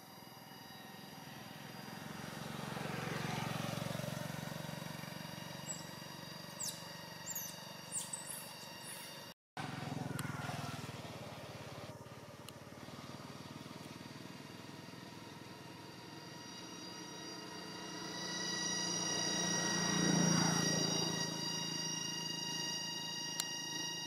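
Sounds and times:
motor vehicle engine hum: 0.0 - 24.0.

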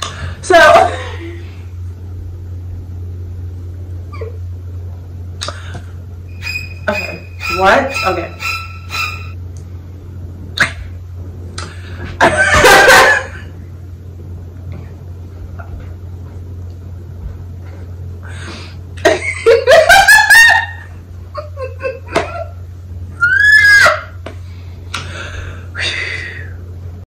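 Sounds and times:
steady low hum: 0.0 - 27.0
woman laughing: 0.5 - 1.5, 12.2 - 13.5, 19.0 - 22.6.

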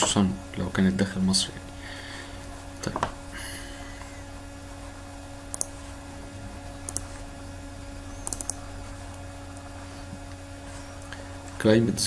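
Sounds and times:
low electrical hum: 0.0 - 12.0
computer mouse clicks: 5.5 - 5.8, 6.9 - 7.1, 8.2 - 8.6.

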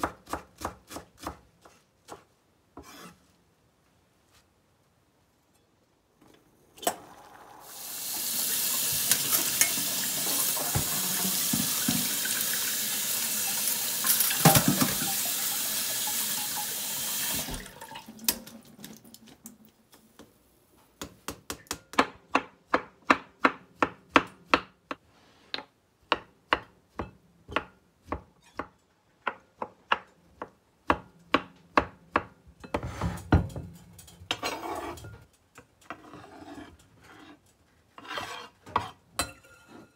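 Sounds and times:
kitchen tap running: 6.9 - 19.7.

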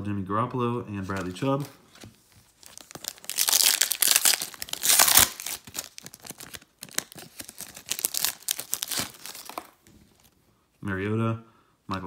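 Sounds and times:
foil wrapper tearing and crinkling: 2.6 - 9.8.

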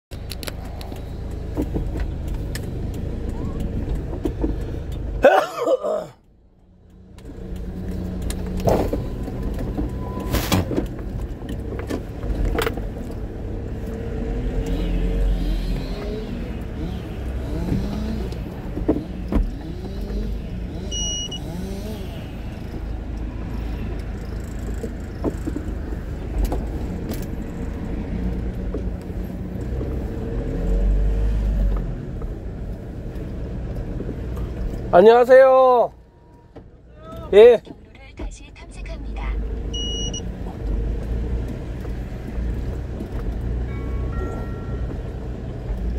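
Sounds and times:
sharp clicks and knocks: 0.1 - 5.2, 22.6 - 29.8
engine rumble from inside cab: 0.1 - 45.9
loud shifting burst: 19.5 - 22.7.

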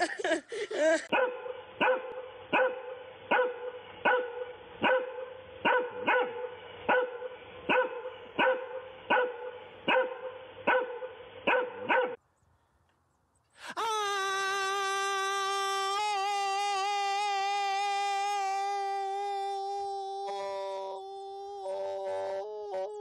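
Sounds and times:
dog barking: 1.1 - 12.2.

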